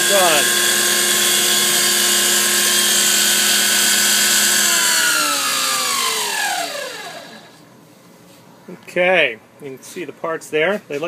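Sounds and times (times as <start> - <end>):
milling machine spindle whine: 0.0 - 7.6.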